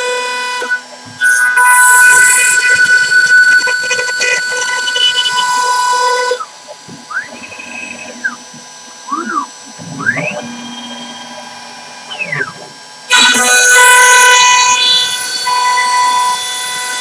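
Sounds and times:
router bit cutting wood: 0.0 - 8.3, 13.1 - 17.0
stepper motors whining: 0.0 - 17.0.

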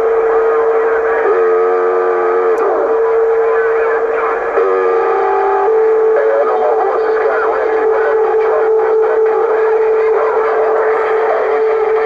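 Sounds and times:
held horn-like chord: 0.0 - 6.8
faint garbled voices: 0.0 - 12.0
steady radio whistle: 0.0 - 12.0.

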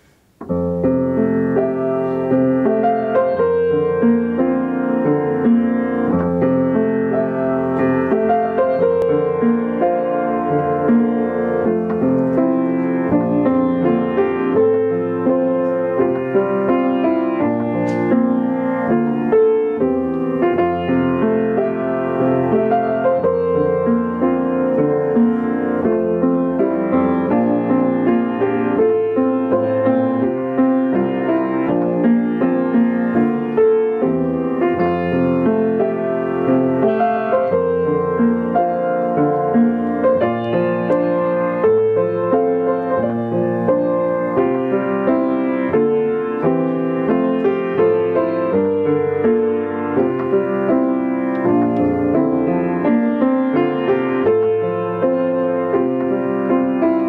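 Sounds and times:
solo piano piece: 0.0 - 57.0.

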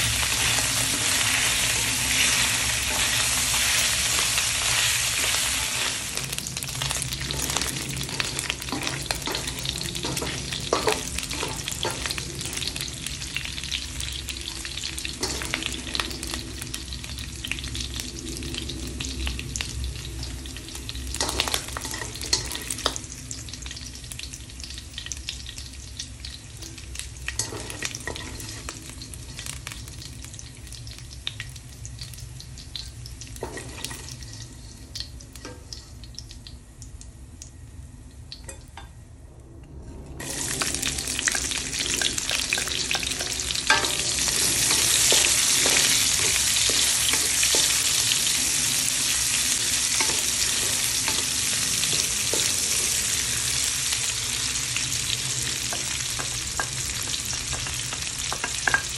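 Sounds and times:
spatula scraping wok: 0.0 - 13.3, 14.4 - 16.6, 21.2 - 22.9, 27.4 - 29.6, 33.4 - 35.6, 40.2 - 58.9
onions sizzling loudly: 0.0 - 36.8, 40.2 - 58.9
fat frying in a wok: 0.0 - 58.9.

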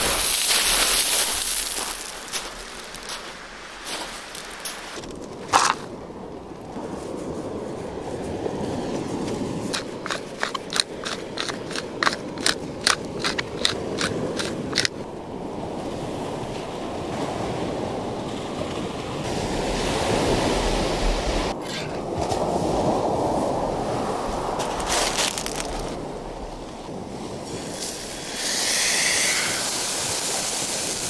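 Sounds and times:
waves washing on shingle: 0.0 - 6.0, 6.8 - 15.1, 22.2 - 31.0
wind buffeting microphone: 0.0 - 31.0.

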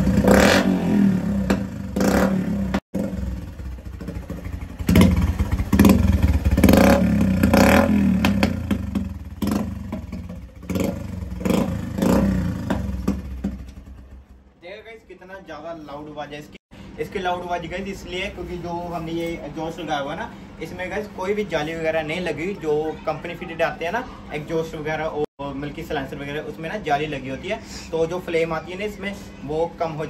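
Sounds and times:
motorcycle engine revving: 0.0 - 14.3.

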